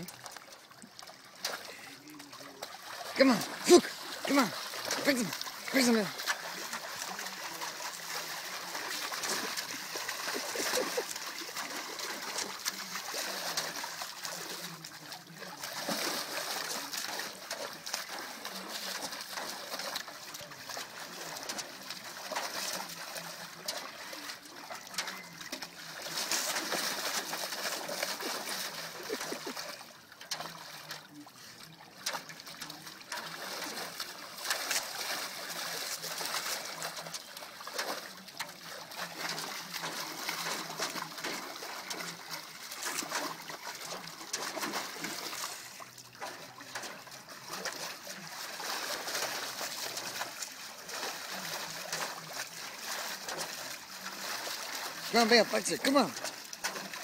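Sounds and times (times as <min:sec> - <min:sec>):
dog splashing water in metal tub: 0:00.0 - 0:57.0.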